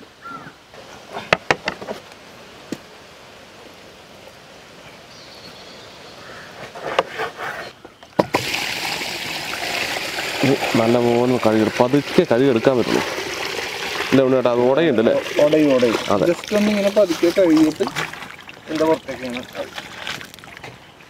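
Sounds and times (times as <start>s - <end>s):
water pouring into a pot: 8.3s - 20.6s.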